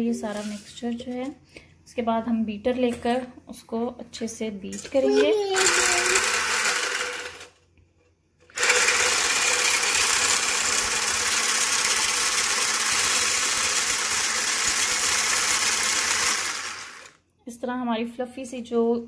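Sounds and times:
hand blender whisking: 5.0 - 7.6, 8.5 - 17.2.

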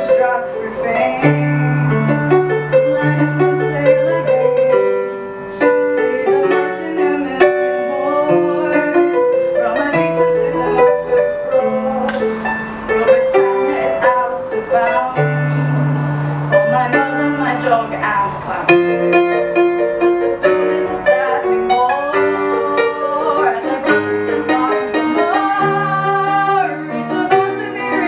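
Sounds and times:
electronic keyboard piano playing: 0.0 - 28.0.

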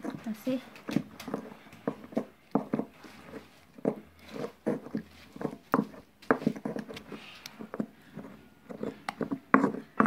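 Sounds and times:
pestle mashing in clay bowl: 0.0 - 10.0.

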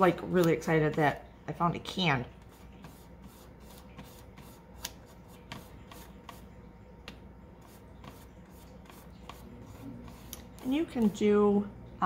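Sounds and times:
brush rubbing on tin can: 2.4 - 6.5, 7.6 - 10.8.

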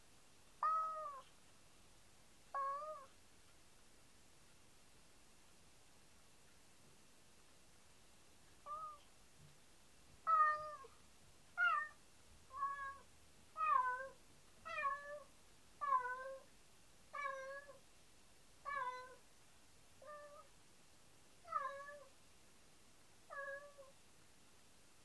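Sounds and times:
cat meowing: 0.6 - 1.3, 2.6 - 3.1, 8.7 - 9.0, 10.3 - 10.9, 11.6 - 13.0, 13.6 - 16.4, 21.5 - 22.1, 23.3 - 23.9.

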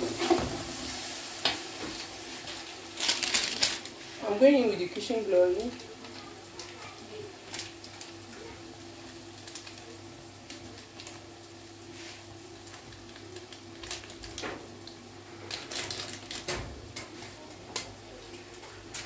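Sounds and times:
food frying with crackles: 0.0 - 19.0.

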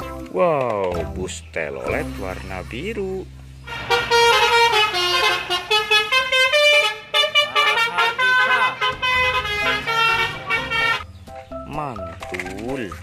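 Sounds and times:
musical air horn melody: 3.7 - 11.0.

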